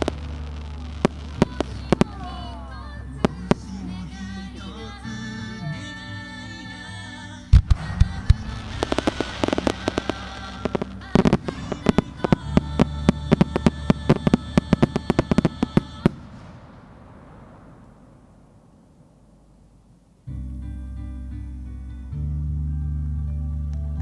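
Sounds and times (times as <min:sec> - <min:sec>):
fireworks booming and crackling: 0:00.0 - 0:03.8, 0:07.5 - 0:19.5.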